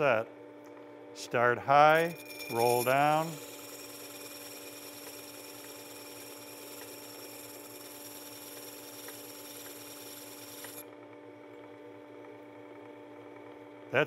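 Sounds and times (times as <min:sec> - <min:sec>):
sharpener motor hum: 0:01.7 - 0:11.0
high grinding hiss: 0:01.8 - 0:05.7.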